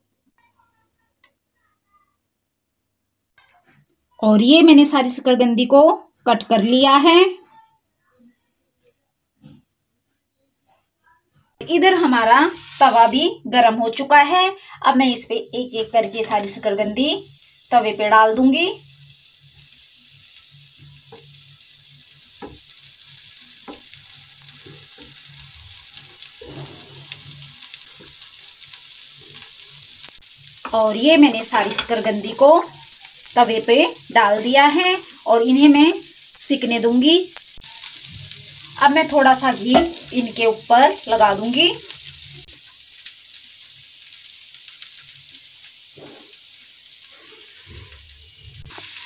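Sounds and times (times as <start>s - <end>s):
food sizzling in oil: 11.6s - 49.0s.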